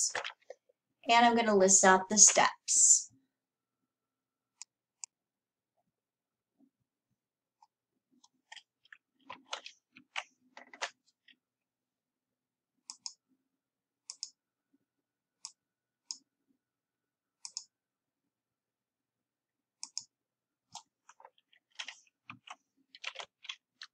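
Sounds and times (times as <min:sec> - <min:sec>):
computer mouse and keyboard clicks: 0:00.1 - 0:00.6, 0:08.2 - 0:11.4, 0:12.9 - 0:13.2, 0:14.1 - 0:14.4, 0:15.4 - 0:16.3, 0:17.5 - 0:17.7, 0:19.8 - 0:20.1, 0:20.7 - 0:23.9.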